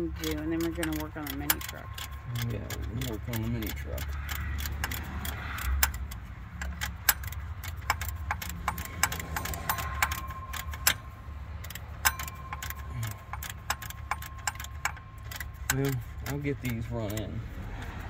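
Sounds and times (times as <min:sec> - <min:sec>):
metal tool clicks and clinks: 0:00.1 - 0:17.3
low steady hum: 0:05.9 - 0:18.0.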